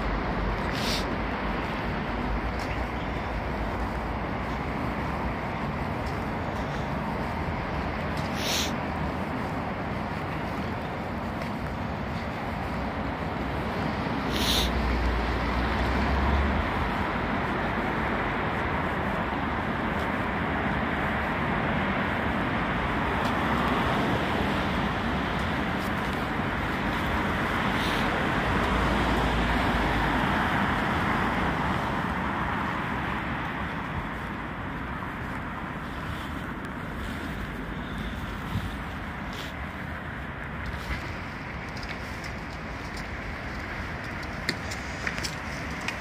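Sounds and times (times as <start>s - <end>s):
road traffic: 0.0s - 46.0s.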